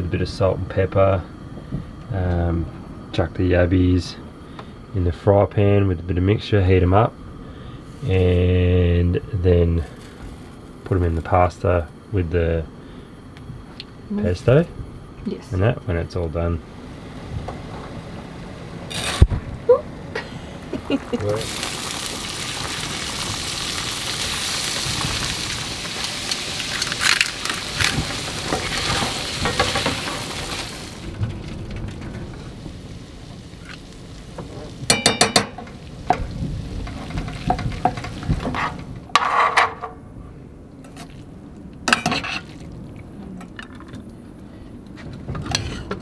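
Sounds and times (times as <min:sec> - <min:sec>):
sizzling in a frying pan: 0:20.6 - 0:39.2
metal utensils clinking on pans: 0:34.8 - 0:36.2, 0:41.9 - 0:42.5.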